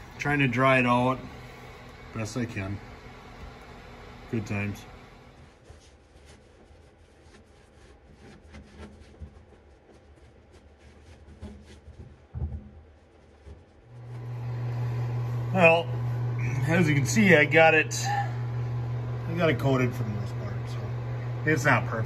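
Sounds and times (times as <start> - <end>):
steady low hum: 0.0 - 5.9, 13.8 - 22.0
paintbrush scratchy strokes: 5.4 - 12.0.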